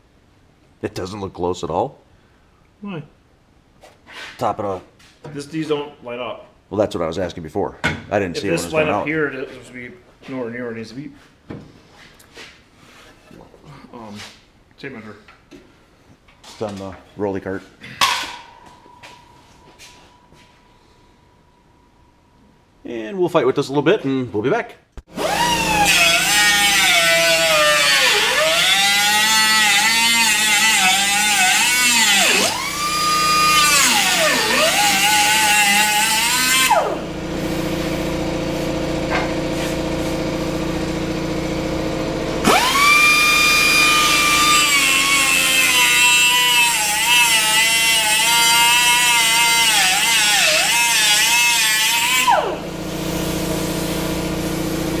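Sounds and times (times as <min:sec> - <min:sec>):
air cut-off tool cutting metal: 0:25.1 - 0:38.8, 0:42.4 - 0:55.0.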